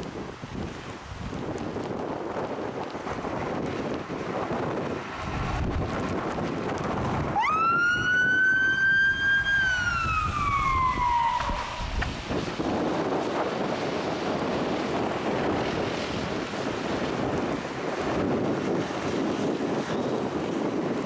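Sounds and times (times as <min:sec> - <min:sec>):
truck engine rumbling: 0:01.6 - 0:21.0
fire engine siren wailing: 0:03.4 - 0:21.0.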